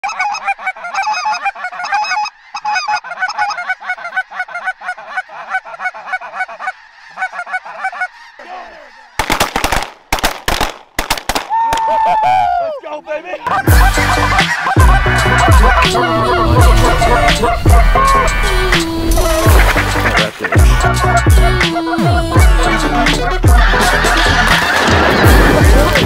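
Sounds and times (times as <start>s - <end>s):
geese honking: 0.0s - 9.5s, 13.3s - 26.0s
falling tone: 15.0s - 20.2s.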